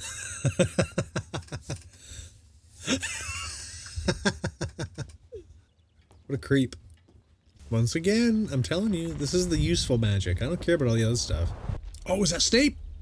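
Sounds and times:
man laughing: 0:00.0 - 0:02.0, 0:02.8 - 0:05.6.

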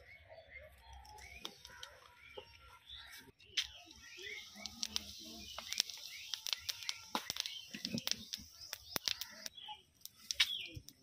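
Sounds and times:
sharp clicks and taps: 0:04.6 - 0:11.0.

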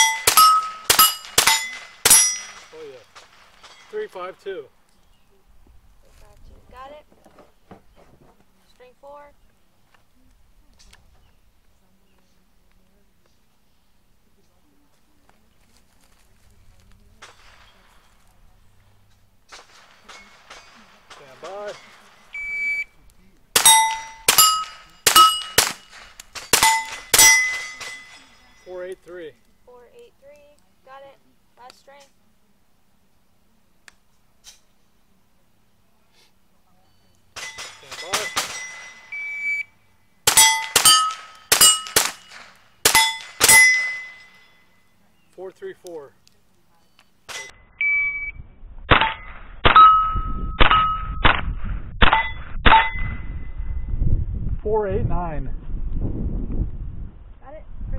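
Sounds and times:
rifle shots: 0:00.0 - 0:03.9, 0:19.5 - 0:22.8, 0:23.5 - 0:28.4, 0:40.2 - 0:44.5
steel plates ringing: 0:00.0 - 0:04.2, 0:20.0 - 0:22.9, 0:23.6 - 0:29.0, 0:37.3 - 0:45.0, 0:47.3 - 0:47.6, 0:49.0 - 0:51.2, 0:52.2 - 0:53.5
shot timer beep: 0:22.3 - 0:22.9, 0:39.1 - 0:39.7, 0:47.7 - 0:48.4.

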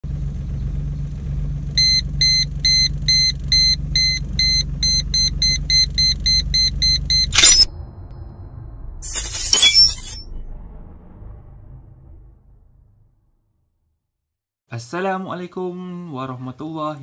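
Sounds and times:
car engine humming: 0:00.0 - 0:10.2
parking sensor buzzer beeping: 0:01.8 - 0:07.7
short loud burst of noise: 0:07.3 - 0:13.8.

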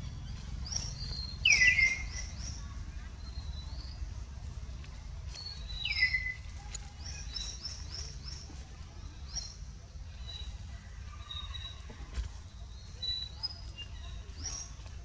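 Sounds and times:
steady low rumble: 0:00.0 - 0:11.4
small birds chirping: 0:00.0 - 0:15.0.

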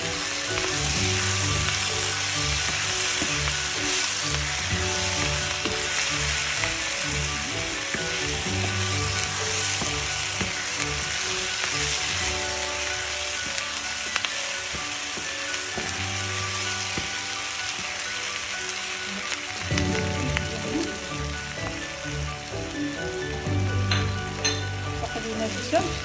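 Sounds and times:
soft background music: 0:00.0 - 0:26.0
vegetables sizzling in oil: 0:00.0 - 0:26.0
spoon tapping on pan: 0:23.8 - 0:24.8.

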